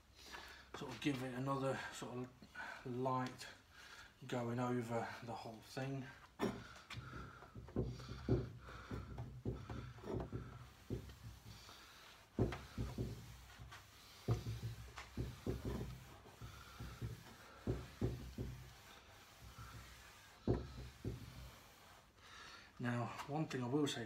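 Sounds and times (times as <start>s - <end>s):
steel wool scrubbing wood: 4.8s - 22.2s
dull knocks on wood: 6.4s - 11.6s, 12.4s - 18.8s, 20.4s - 21.4s.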